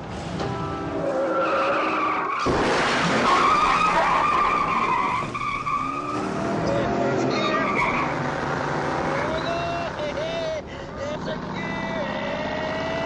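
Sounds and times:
car engine revving: 2.5 - 13.0
tyres squealing: 3.2 - 10.4.

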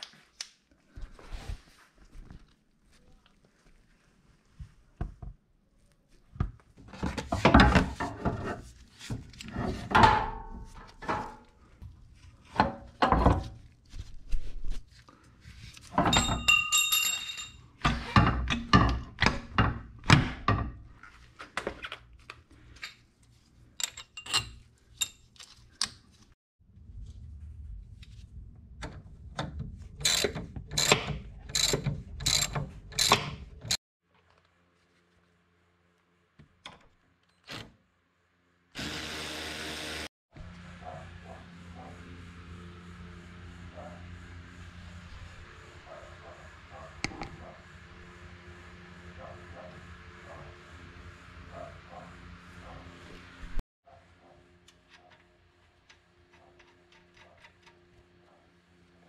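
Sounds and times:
wrenches clanking on bolts: 15.9 - 19.8, 23.8 - 25.2, 30.0 - 33.8
ratchet clicking: 30.0 - 33.3.

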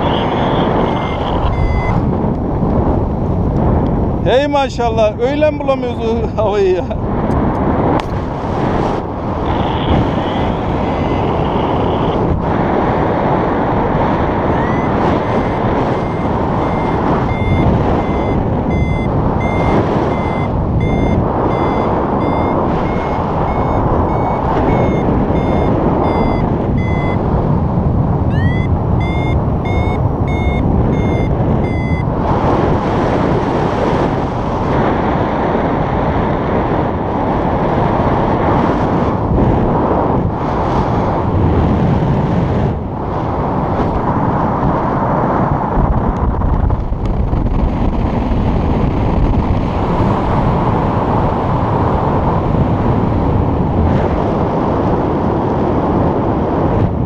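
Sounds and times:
variometer beeping: 0.0 - 2.1, 14.4 - 27.3, 28.3 - 32.2
wind rush on microphone: 0.0 - 57.0.

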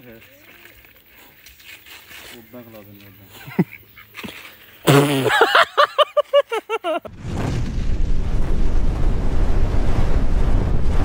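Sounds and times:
deep rumbling explosion effect: 7.1 - 11.0.

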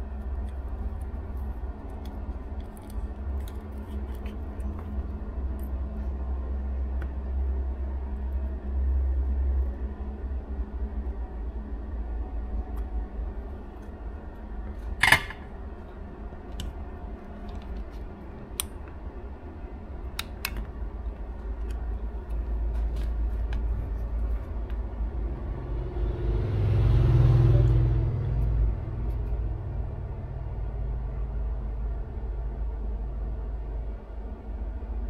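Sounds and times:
low background rumble: 0.0 - 35.0
low hum: 0.0 - 35.0.

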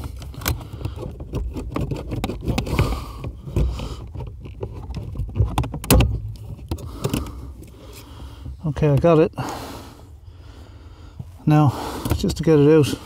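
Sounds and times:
metal tool scraping plastic: 0.0 - 8.0.

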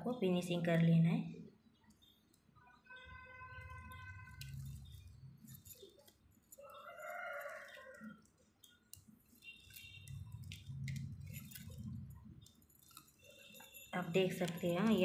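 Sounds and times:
plastic strips clicking and rustling: 3.6 - 15.0.

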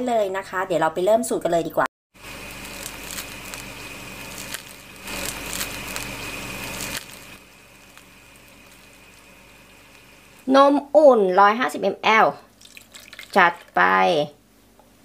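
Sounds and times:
crisp crust crackling: 2.2 - 10.5, 12.6 - 13.9
faint steady hum: 2.2 - 15.0.

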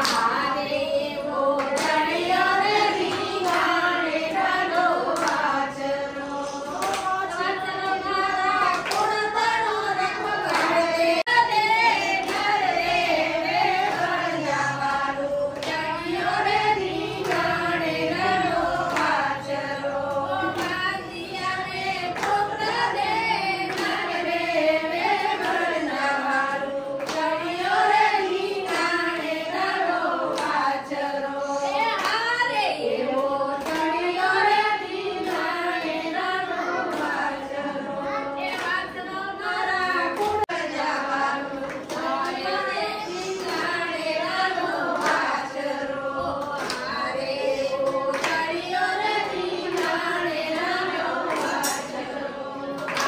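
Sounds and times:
hand clapping: 0.0 - 0.5, 1.5 - 17.6, 18.2 - 30.8, 31.9 - 32.4, 33.0 - 37.5, 38.4 - 53.0
women singing in unison: 0.0 - 53.0.

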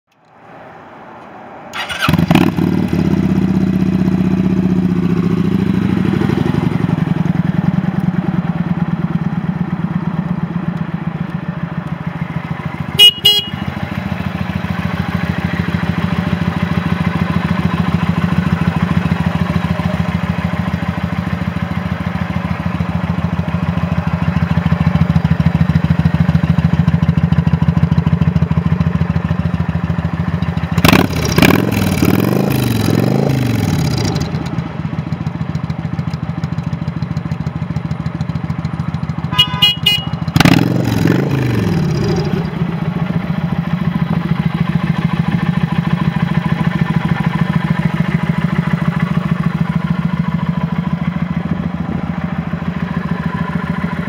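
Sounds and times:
motorcycle engine idling: 1.8 - 32.0, 33.6 - 54.0
horn beeps: 12.9 - 13.8, 39.3 - 40.5.

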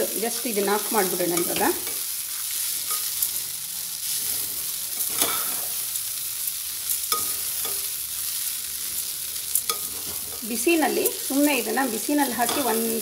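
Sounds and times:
food sizzling: 0.0 - 13.0
metal spatula scraping pan: 2.7 - 5.8, 7.0 - 8.0, 9.6 - 11.3, 12.2 - 13.0.

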